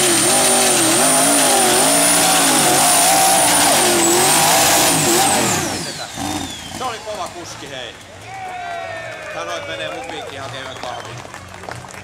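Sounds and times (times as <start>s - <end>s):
tractor engine at full throttle: 0.0s - 8.2s.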